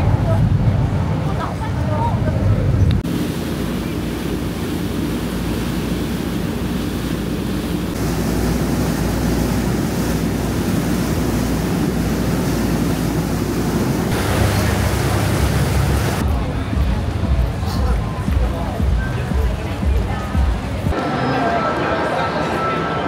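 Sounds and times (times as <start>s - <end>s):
boat engine rumbling: 0.0s - 22.2s
water rushing: 0.0s - 23.0s.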